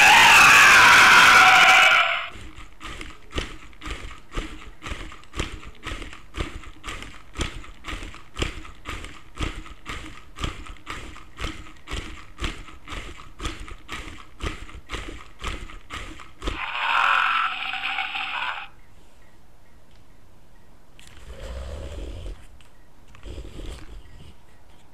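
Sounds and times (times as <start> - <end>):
electronic toy roar: 0.0 - 3.5, 13.1 - 18.8.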